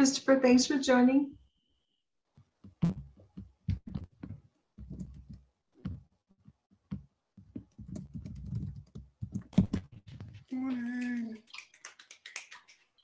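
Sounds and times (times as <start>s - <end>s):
computer keyboard typing: 7.6s - 9.8s.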